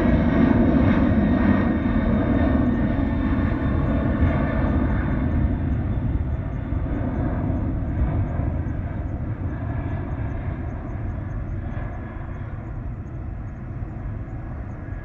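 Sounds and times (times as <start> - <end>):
jet engines rumbling: 0.0 - 15.0.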